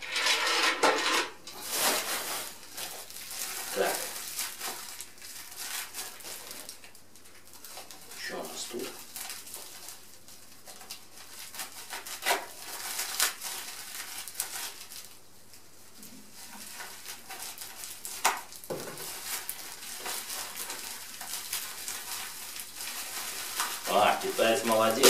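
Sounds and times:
plastic wrapping crinkling: 0:01.4 - 0:25.0
scissors cutting plastic: 0:10.6 - 0:15.0, 0:16.5 - 0:25.0.

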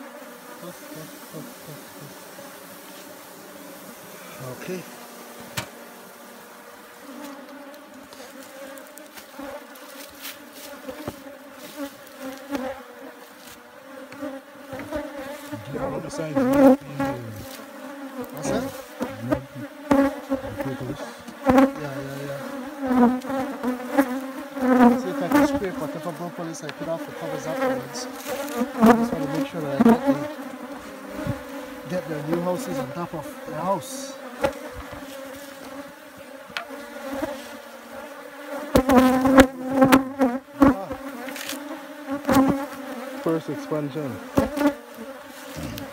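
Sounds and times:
honeybees buzzing: 0:00.0 - 0:45.9.

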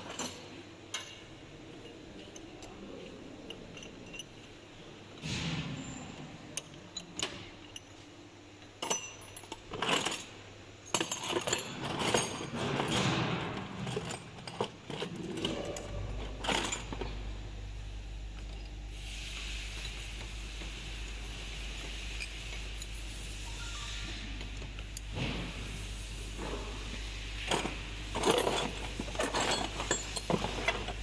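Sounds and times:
metal parts and tools clinking: 0:00.0 - 0:05.4, 0:08.6 - 0:17.4, 0:21.8 - 0:31.0
steady low hum: 0:00.0 - 0:31.0
hiss: 0:18.9 - 0:24.4.

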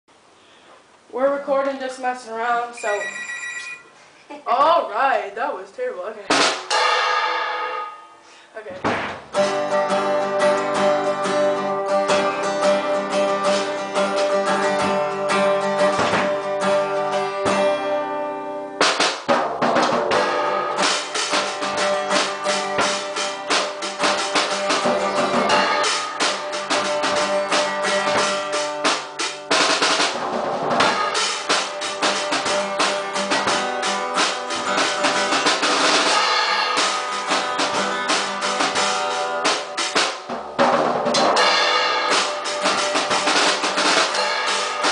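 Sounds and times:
acoustic guitar strumming: 0:06.2 - 0:44.9
drum kit playing: 0:06.2 - 0:44.9
cymbals washing: 0:06.3 - 0:08.6, 0:20.0 - 0:44.9.

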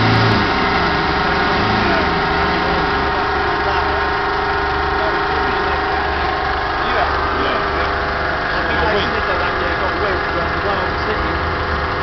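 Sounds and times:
engine running steadily: 0:00.0 - 0:12.0.

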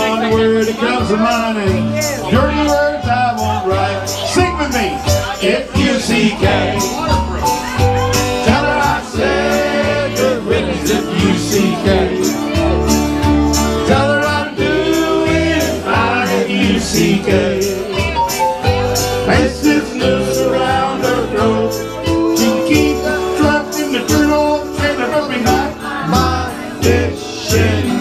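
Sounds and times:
live country band playing: 0:00.0 - 0:28.0
person singing: 0:08.2 - 0:13.0, 0:13.7 - 0:28.0.

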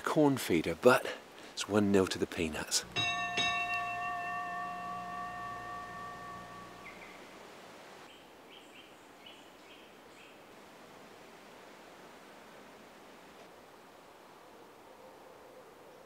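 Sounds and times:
bell-like chime: 0:02.9 - 0:07.2
faint bird chirps: 0:06.7 - 0:07.3.

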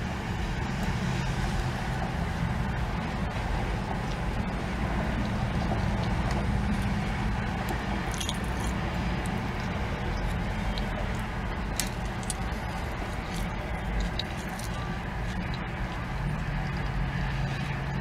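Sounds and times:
car engine humming: 0:00.0 - 0:18.0
quiet chewing: 0:05.1 - 0:17.7.

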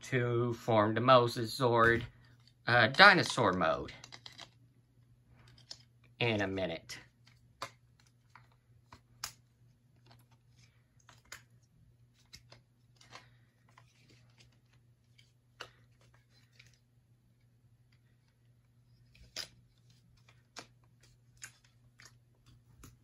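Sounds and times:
plastic toy parts clicking: 0:03.2 - 0:04.6.

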